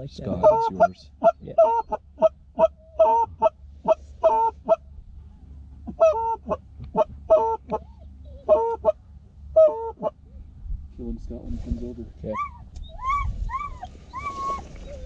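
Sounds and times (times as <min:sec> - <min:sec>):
goose call honks and clucks: 0:00.3 - 0:04.9, 0:05.8 - 0:09.0, 0:09.6 - 0:10.2, 0:12.3 - 0:15.0.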